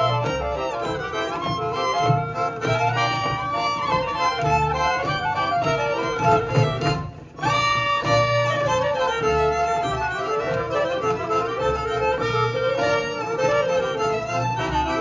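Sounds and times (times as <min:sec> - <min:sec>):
fiddles playing lively tune: 0:00.0 - 0:15.0
folk band playing live: 0:00.0 - 0:15.0.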